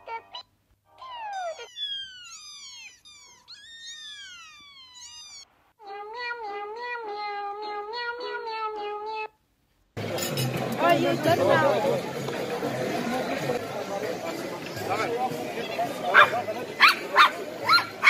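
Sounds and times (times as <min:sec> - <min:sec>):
kittens mewing: 0:00.0 - 0:09.3.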